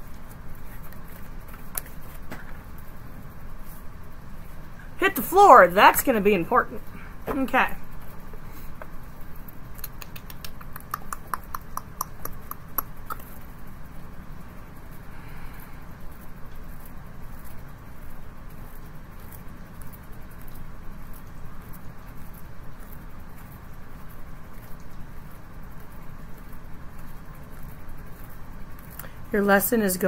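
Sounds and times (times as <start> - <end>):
steady low hum: 0.0 - 30.0
cards being shuffled: 0.3 - 2.7.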